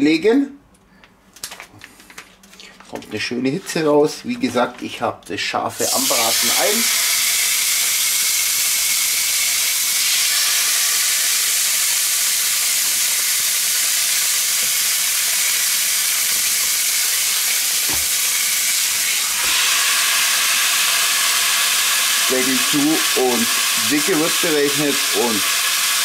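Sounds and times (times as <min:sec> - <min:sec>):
meat sizzling on grill: 0:05.8 - 0:26.0.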